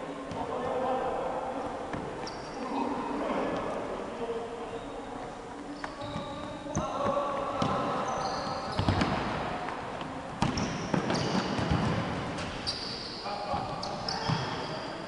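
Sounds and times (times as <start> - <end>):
sneakers squeaking on court: 1.9 - 2.8, 5.7 - 9.6, 10.4 - 15.0.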